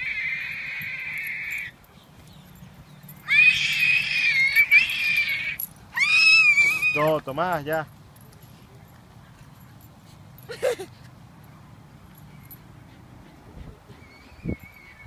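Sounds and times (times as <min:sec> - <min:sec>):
dog squealing: 0:03.3 - 0:07.0.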